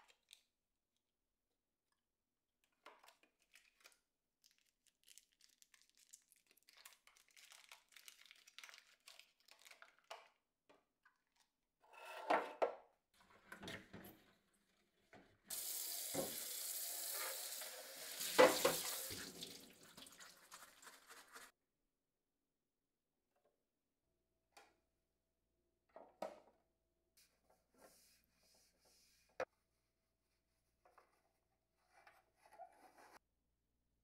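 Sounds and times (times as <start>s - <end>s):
tap running into steel sink: 15.9s - 16.5s, 18.2s - 19.5s.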